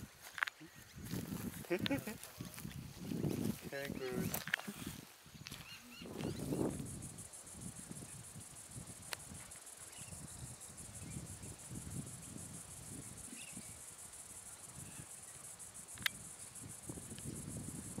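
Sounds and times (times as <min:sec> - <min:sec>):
insects trilling: 0:00.0 - 0:18.0
sharp click: 0:15.9 - 0:16.2.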